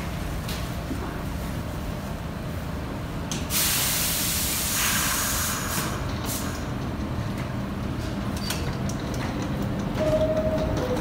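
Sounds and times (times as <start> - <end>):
subway car equipment hum: 0.0 - 11.0
air release hiss: 3.5 - 6.6.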